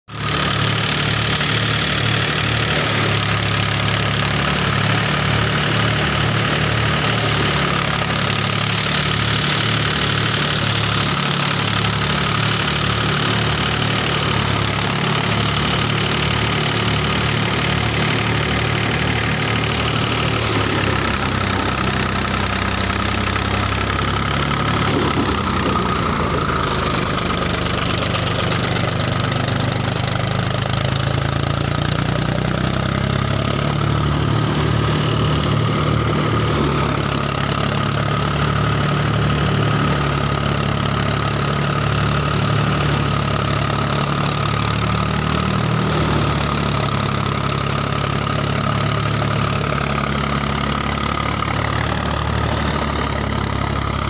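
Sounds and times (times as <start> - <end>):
tractor diesel engine running: 0.0 - 54.0
threshing drum spinning: 19.2 - 27.2.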